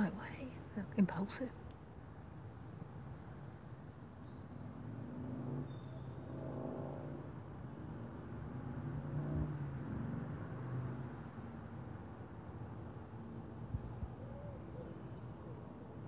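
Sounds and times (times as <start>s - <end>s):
vehicle engine passing by: 4.4s - 11.5s
faint bird chirps: 5.6s - 6.2s, 7.9s - 9.4s, 11.8s - 12.9s, 14.2s - 15.7s.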